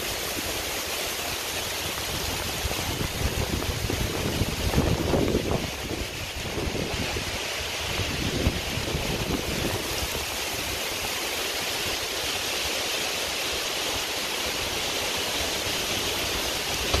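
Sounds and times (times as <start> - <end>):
heavy rain: 0.0 - 17.0
wind gusting on microphone: 1.8 - 10.8, 15.2 - 17.0.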